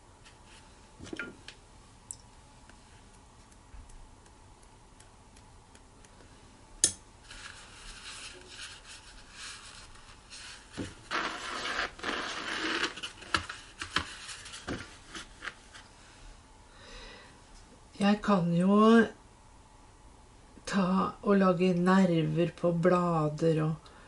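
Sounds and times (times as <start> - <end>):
paper towel rustling: 7.2 - 15.9.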